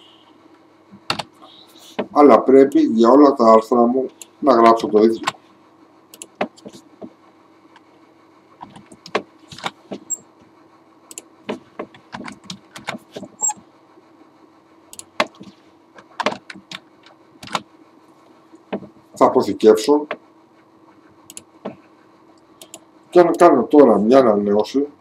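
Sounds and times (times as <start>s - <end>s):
faint steady hum: 0.0s - 25.0s
keyboard typing: 15.0s - 17.7s.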